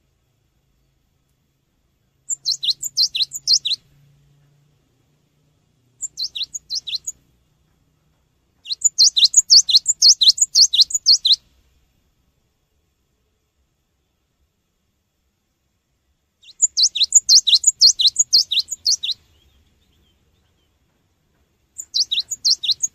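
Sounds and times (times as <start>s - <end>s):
bird singing high falling notes: 2.3s - 4.0s, 6.0s - 7.2s, 8.6s - 11.4s, 16.4s - 20.8s, 21.8s - 22.9s.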